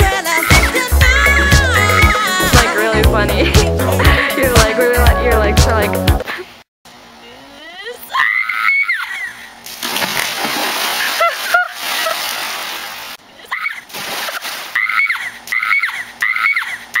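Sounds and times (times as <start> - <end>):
young woman screaming: 8.1 - 9.5, 14.8 - 17.0
splash into pool water: 9.6 - 13.2, 13.8 - 15.1.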